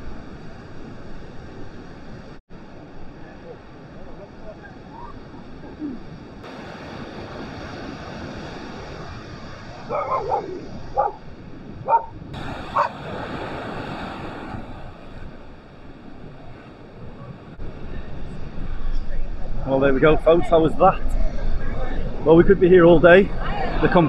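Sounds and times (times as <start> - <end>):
sea surf breaking: 0.0 - 24.0
wind on microphone: 0.0 - 24.0
dog barking: 9.9 - 11.2, 11.8 - 12.1, 12.7 - 13.0.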